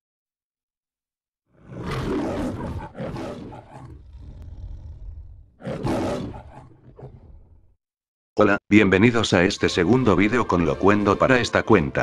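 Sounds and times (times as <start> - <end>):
lion roaring: 1.5 - 7.8
low lion growl: 1.5 - 7.8.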